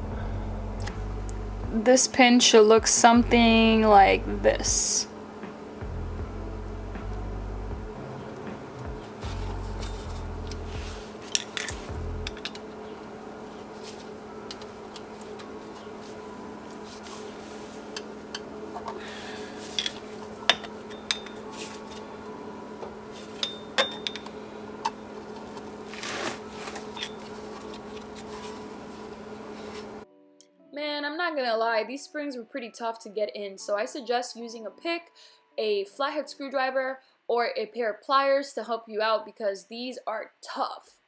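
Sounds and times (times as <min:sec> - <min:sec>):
steady low hum: 0:00.0 - 0:30.1.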